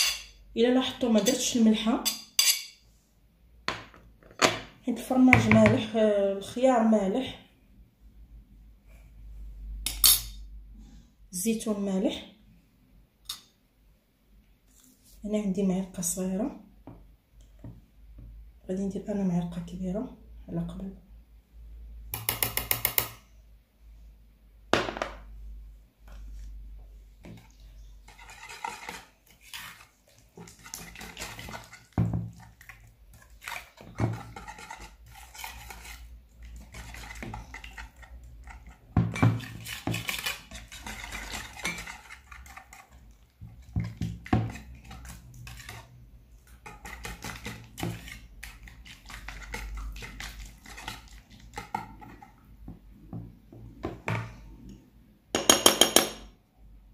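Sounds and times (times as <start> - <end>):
whisk scraping plastic bowl: 27.2 - 52.5
utensils knocking on bowl: 55.4 - 56.3.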